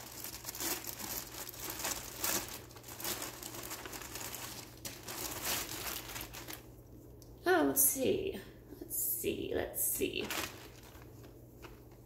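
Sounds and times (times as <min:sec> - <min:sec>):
packaging crinkling and rustling: 0:00.0 - 0:07.0, 0:10.1 - 0:12.0.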